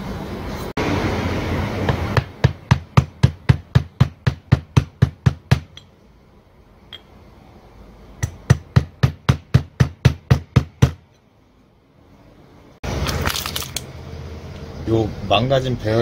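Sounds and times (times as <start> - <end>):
mallet tapping metal socket: 5.7 - 5.9.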